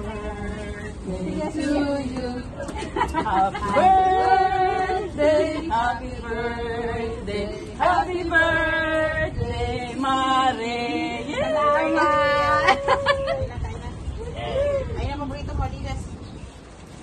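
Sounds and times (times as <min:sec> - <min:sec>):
voices singing held notes: 0:00.0 - 0:13.4.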